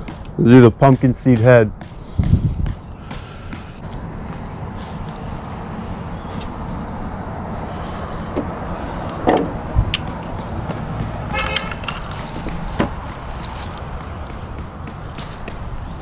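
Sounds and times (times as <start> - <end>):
sharp clicks and knocks: 9.2 - 15.6
metallic jingle: 11.4 - 14.0.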